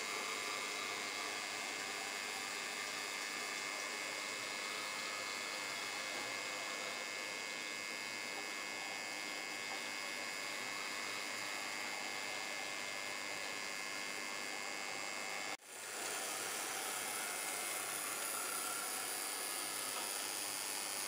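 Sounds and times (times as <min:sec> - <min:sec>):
steady hiss: 0:00.0 - 0:06.8, 0:15.6 - 0:21.0
faint high whine: 0:00.0 - 0:21.0.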